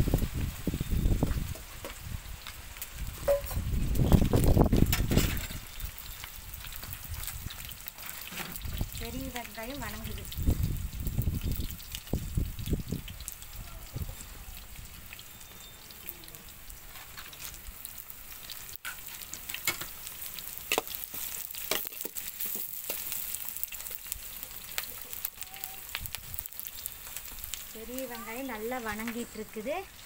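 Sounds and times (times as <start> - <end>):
oil popping and crackling: 0.0 - 30.0
onions sizzling in hot oil: 0.0 - 30.0.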